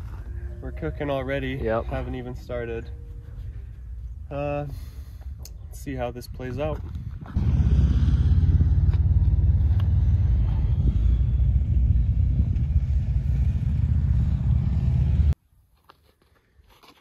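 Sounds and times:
wind buffeting microphone: 5.2s - 15.4s.

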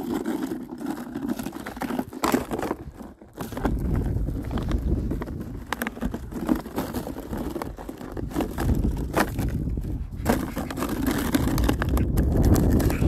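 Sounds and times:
dog crunching through snow: 0.0s - 13.0s
wind buffeting microphone: 2.8s - 13.0s.

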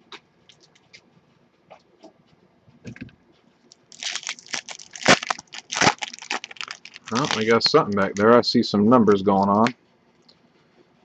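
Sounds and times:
foil wrapper tearing and crinkling: 3.7s - 8.2s.

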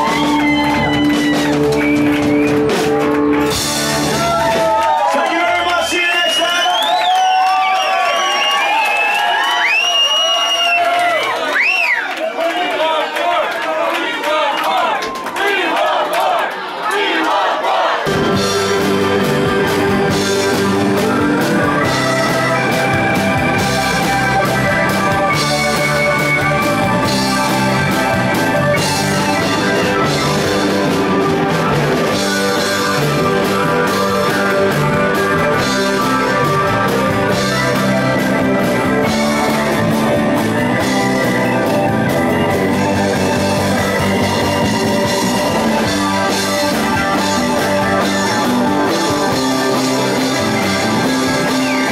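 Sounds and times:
blues-rock band playing: 0.0s - 6.1s, 18.0s - 51.9s.

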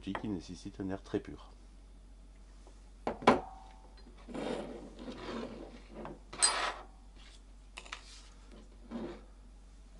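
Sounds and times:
hose rubbing and scraping: 4.2s - 6.8s.

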